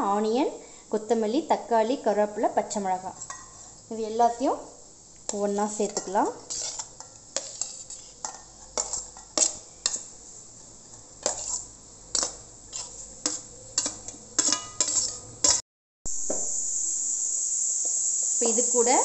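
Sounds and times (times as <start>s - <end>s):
spoon scraping a metal plate: 5.7s - 10.1s, 10.9s - 15.6s.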